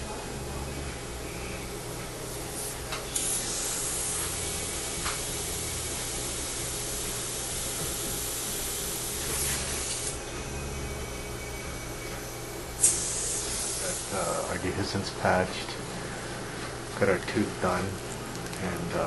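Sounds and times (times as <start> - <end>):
dental suction hissing: 3.1 - 10.2, 12.8 - 14.5.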